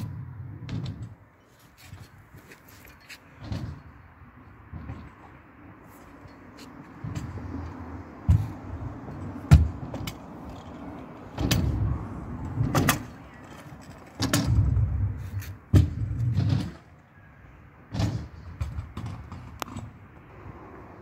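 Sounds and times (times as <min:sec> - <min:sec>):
scooter clacking on ramps: 0:00.0 - 0:01.2, 0:03.3 - 0:04.1, 0:06.8 - 0:17.1, 0:17.9 - 0:20.0
scooter wheels rolling on concrete: 0:00.0 - 0:17.3, 0:17.9 - 0:21.0.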